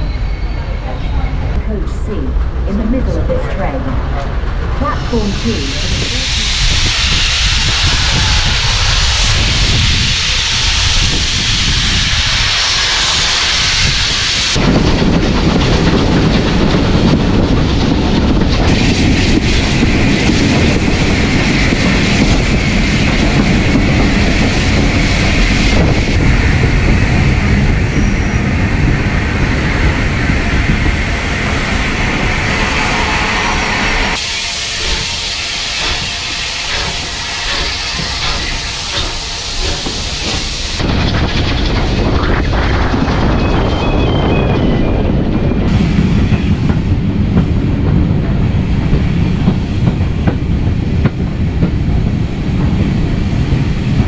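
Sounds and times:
train rumbling on rails: 0.0 - 54.0
steam hissing: 4.8 - 42.7.

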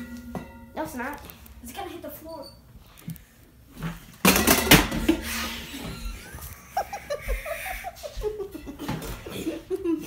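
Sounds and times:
boys laughing: 5.4 - 10.0.

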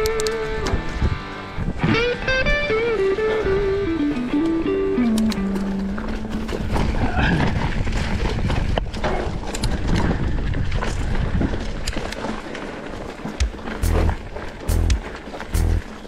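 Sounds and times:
mountain bike rattling over rocks: 5.4 - 16.0.

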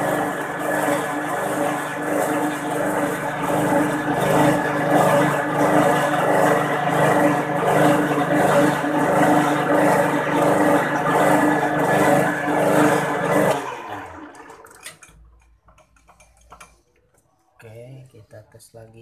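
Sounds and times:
metal lathe running: 0.0 - 15.0.

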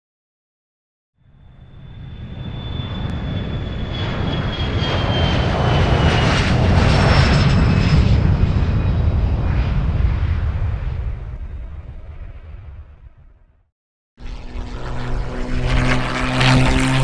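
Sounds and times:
high engine whine falling in pitch: 1.2 - 6.2
airplane flying past: 1.2 - 13.4, 14.2 - 17.0.

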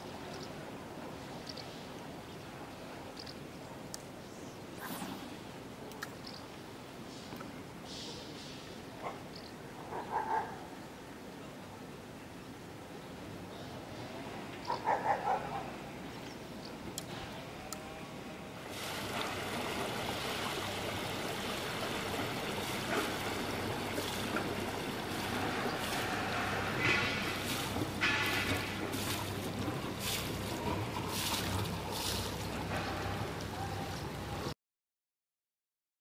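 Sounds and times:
wind and water noise: 0.0 - 34.6
low engine hum: 18.6 - 34.5.

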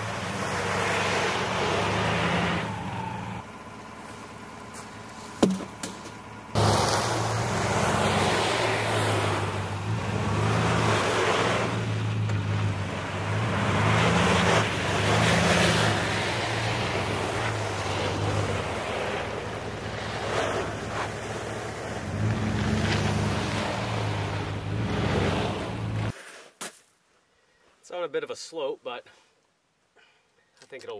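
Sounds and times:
pickup truck engine revving: 0.0 - 3.7, 6.3 - 26.1
sharp knocks: 5.4 - 6.2.

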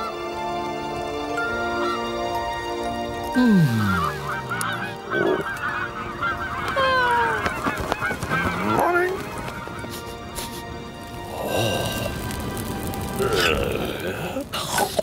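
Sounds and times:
cartoon geese honking: 3.8 - 9.2.

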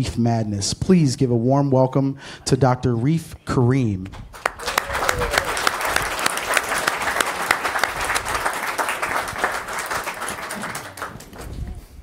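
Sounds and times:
audience applauding: 4.4 - 11.7.

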